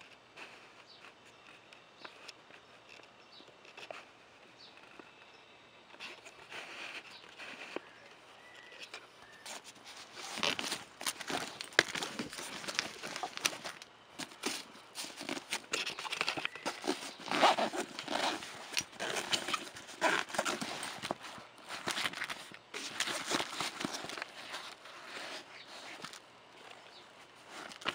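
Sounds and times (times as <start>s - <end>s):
camera bag rustling and clicking: 5.9s - 27.9s.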